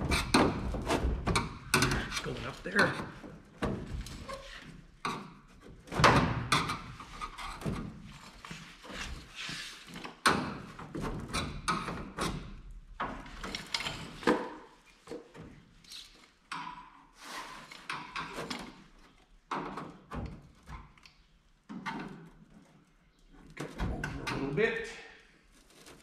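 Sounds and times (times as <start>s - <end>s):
sheet metal thunks and knocks: 0.0s - 4.3s, 5.0s - 8.0s.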